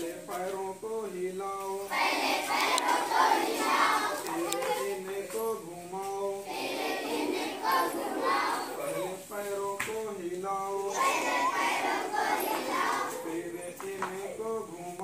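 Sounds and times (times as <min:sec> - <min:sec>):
single voice singing: 0:00.0 - 0:15.0
children chanting in chorus: 0:01.9 - 0:05.0, 0:06.4 - 0:09.2, 0:10.8 - 0:13.3.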